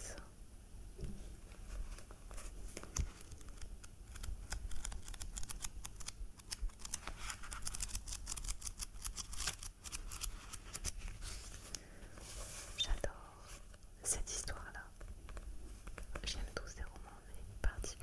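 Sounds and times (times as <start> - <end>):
book pages turning: 1.5 - 12.8.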